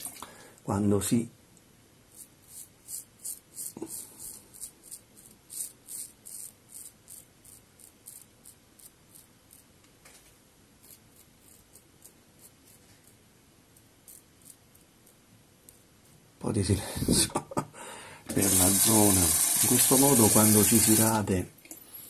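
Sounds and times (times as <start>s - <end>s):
razor scraping stubble: 2.1s - 9.7s, 10.8s - 15.2s.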